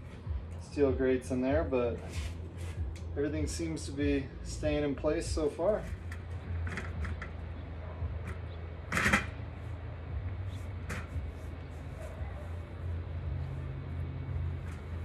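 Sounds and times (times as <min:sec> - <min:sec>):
wheeled grill rumbling: 0:00.0 - 0:15.0
sharp clatter: 0:08.3 - 0:09.4.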